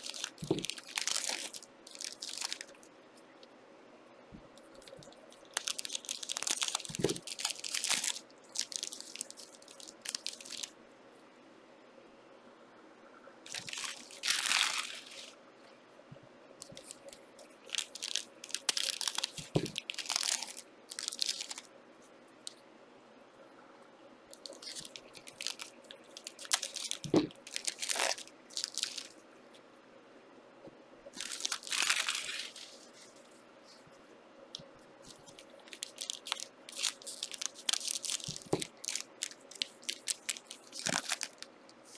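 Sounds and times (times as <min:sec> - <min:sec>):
wrappers crinkling and tearing: 0:00.0 - 0:02.8, 0:04.7 - 0:10.7, 0:13.5 - 0:15.3, 0:16.6 - 0:21.7, 0:24.4 - 0:29.1, 0:31.2 - 0:33.1, 0:35.0 - 0:41.9.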